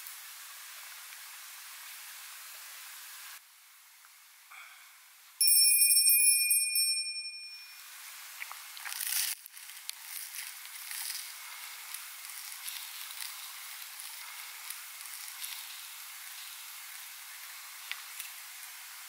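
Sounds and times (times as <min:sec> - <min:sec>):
bright metallic ring: 0:05.4 - 0:08.1
bread roll crackling: 0:08.2 - 0:19.0.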